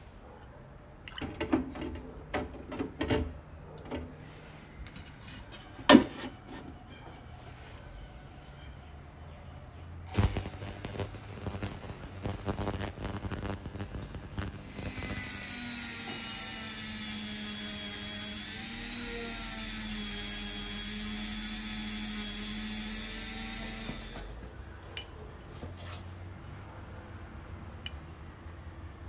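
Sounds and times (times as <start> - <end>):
ultrasonic cleaner hiss and buzz: 10.1 - 18.9, 20.6 - 24.4.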